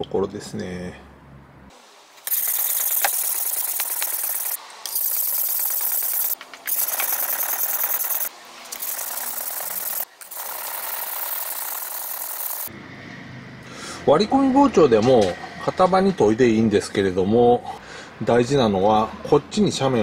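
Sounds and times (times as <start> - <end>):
knife blade grinding on whetstone: 2.3 - 12.7.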